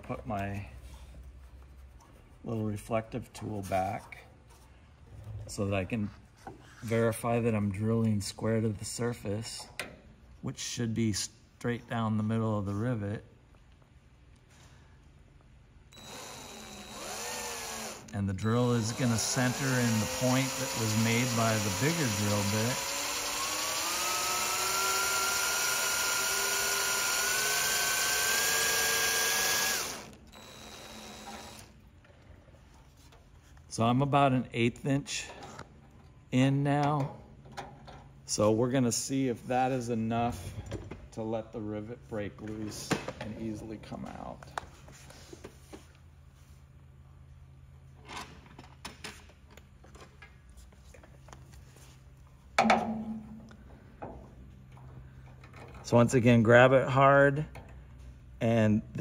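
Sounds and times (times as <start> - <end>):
drill whining: 15.9 - 31.7.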